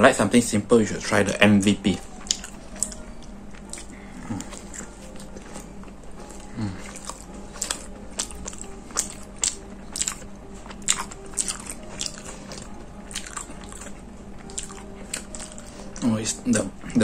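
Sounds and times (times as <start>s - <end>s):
person chewing crunchy sandwich: 2.0s - 16.7s.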